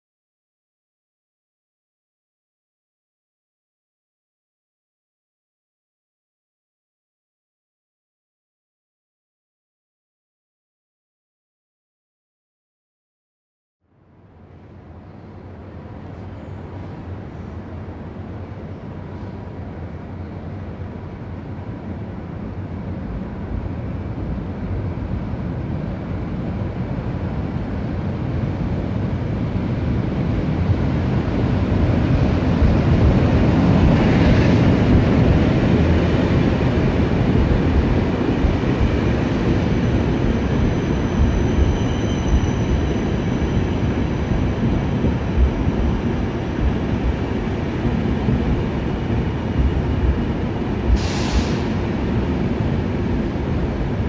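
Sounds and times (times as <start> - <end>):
electric locomotive rumble: 14.0 - 54.0
train wheels rolling: 30.7 - 54.0
high brake squeal: 39.8 - 45.0, 51.0 - 51.8.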